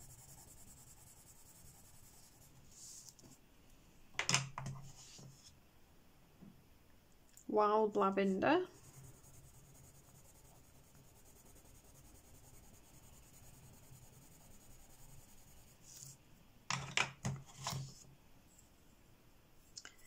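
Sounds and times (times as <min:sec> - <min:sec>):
pencil scratching on paper: 0:00.0 - 0:03.3, 0:08.7 - 0:16.2.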